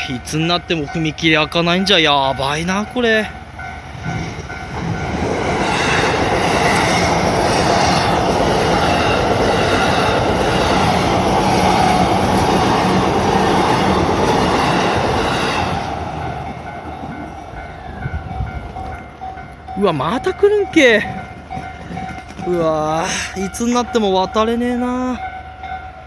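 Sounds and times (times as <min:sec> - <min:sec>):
level crossing bell ringing: 0:00.0 - 0:05.2, 0:16.2 - 0:26.0
electric train passing: 0:00.0 - 0:26.0.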